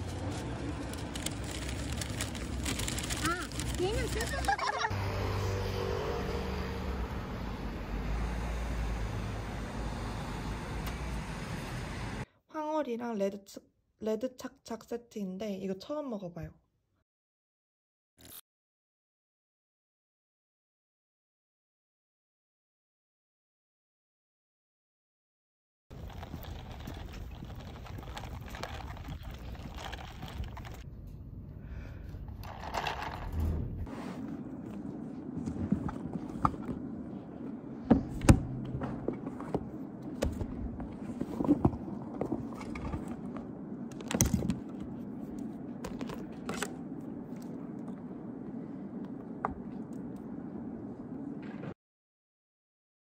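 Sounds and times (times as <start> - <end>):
outdoor background noise: 0.0 - 13.3, 25.9 - 51.8
cars driving past: 4.9 - 12.2.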